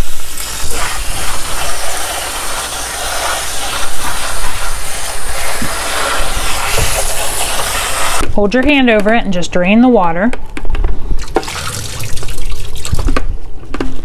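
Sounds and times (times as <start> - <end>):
faucet sprayer spraying water: 0.0 - 8.2, 11.2 - 13.2
water splashing into steel sink: 11.2 - 13.2.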